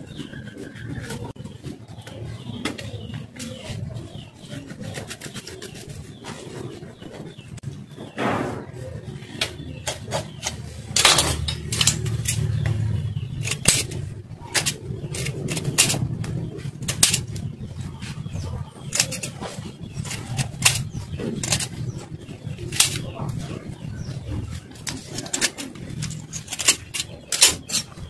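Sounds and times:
steady low hum: 5.6s - 28.0s.

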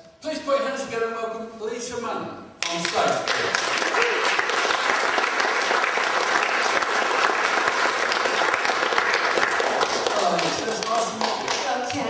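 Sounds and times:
audience applauding: 2.6s - 12.0s.

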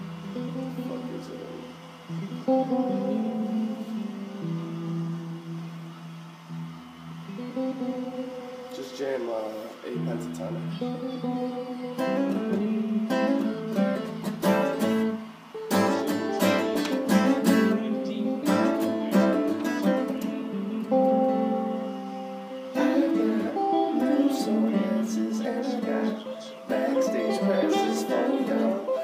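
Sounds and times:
acoustic guitar strumming chords: 0.0s - 29.0s.

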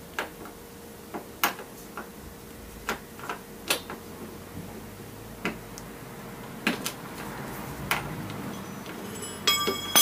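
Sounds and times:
bell-like ringing high tones: 8.6s - 10.0s.

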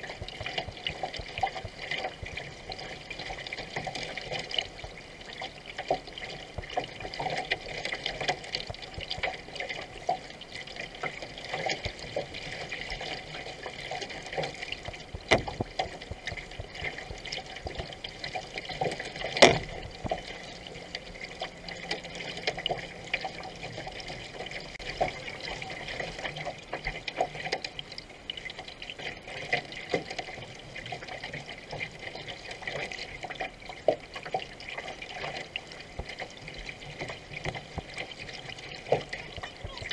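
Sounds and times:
paddle strokes splashing: 0.0s - 27.8s
water rushing along canoe hull: 0.0s - 39.9s.

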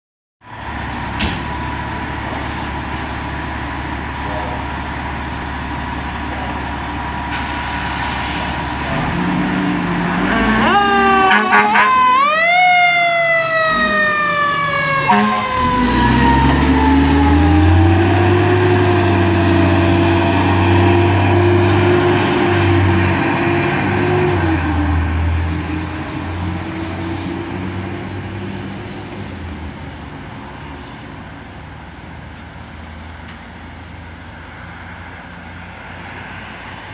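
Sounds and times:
truck engine running: 0.5s - 7.6s
siren sweeping: 9.8s - 21.7s.

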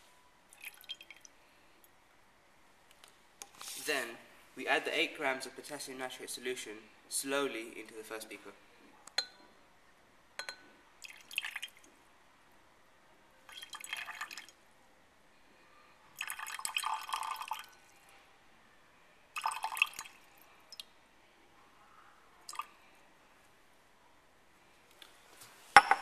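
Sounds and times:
liquid trickling into glass beaker: 0.5s - 1.4s, 11.0s - 11.9s, 13.5s - 14.6s, 16.2s - 17.9s, 19.4s - 20.9s, 22.5s - 22.7s.

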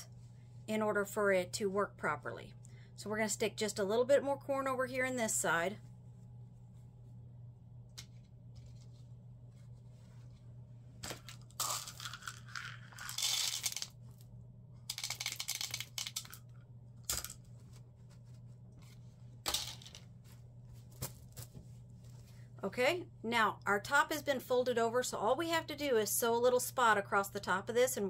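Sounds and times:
fabric being handled: 8.4s - 10.6s, 17.5s - 19.4s
corn kernels rattling through funnel: 11.4s - 13.9s, 14.9s - 16.4s.

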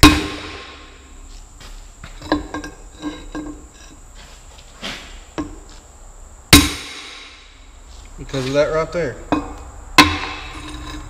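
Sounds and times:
hammer blows: 6.5s - 7.7s.

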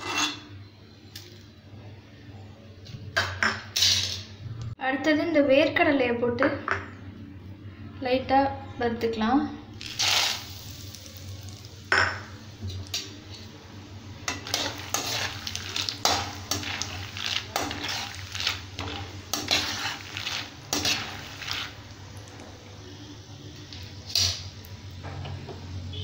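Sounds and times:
ladle scraping metal pan: 0.0s - 0.5s, 14.3s - 21.8s
oil sizzling: 9.8s - 22.8s.

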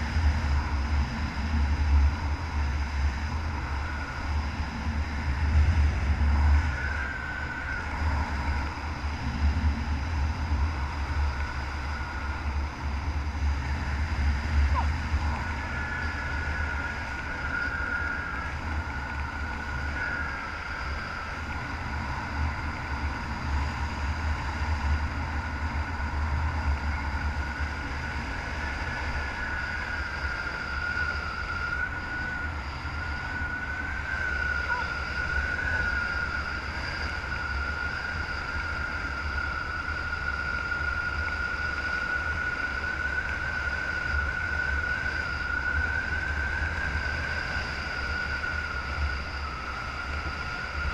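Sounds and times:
thin high wind whistle: 10.3s - 50.9s.

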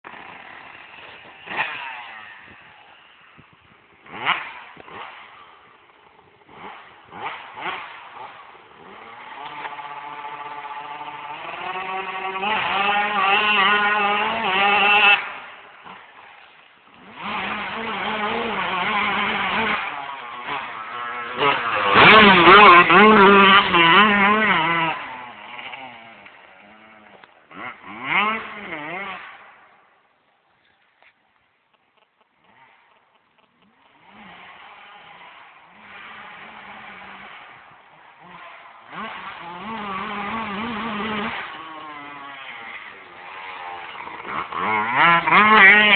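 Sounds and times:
motocross bike engine revving: 0.0s - 45.9s.

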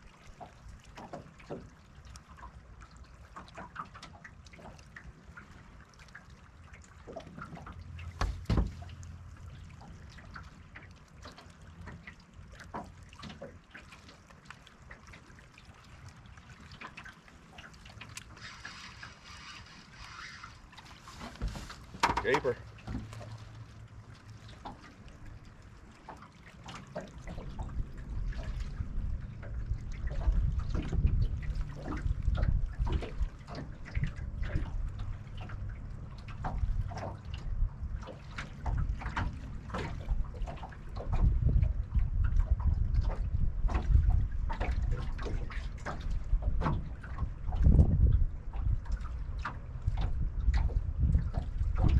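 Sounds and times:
small waves lapping against boat hull: 0.0s - 51.9s
wind rumble on microphone: 17.4s - 51.9s.

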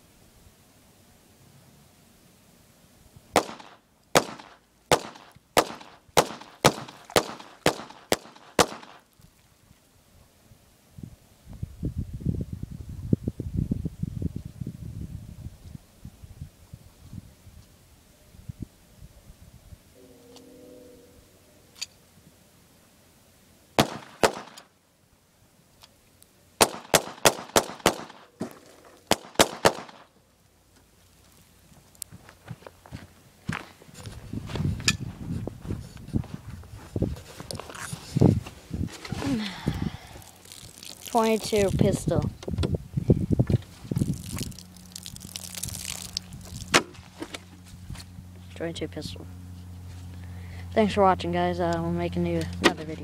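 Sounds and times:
pistol shots with echo: 3.4s - 9.0s, 23.8s - 24.6s, 26.6s - 28.2s, 29.1s - 30.0s.

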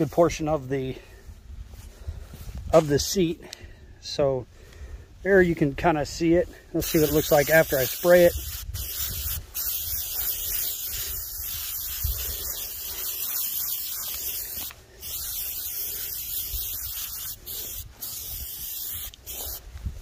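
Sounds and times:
aerosol can spraying: 6.8s - 19.7s.

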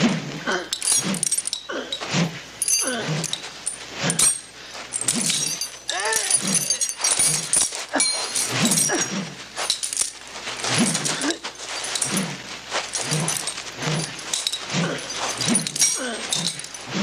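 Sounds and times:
scuffling: 0.8s - 17.0s
grunts and hard breathing: 1.7s - 3.4s, 4.1s - 9.4s, 10.6s - 17.0s.

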